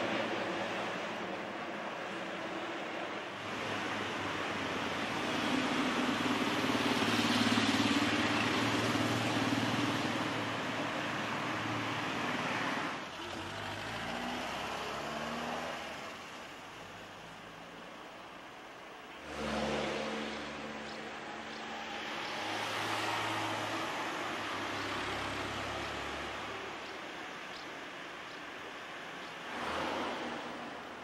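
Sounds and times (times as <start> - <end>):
engine pulling away: 3.4 - 16.4, 19.2 - 27.0
vehicle passing: 19.2 - 26.9, 29.0 - 31.0.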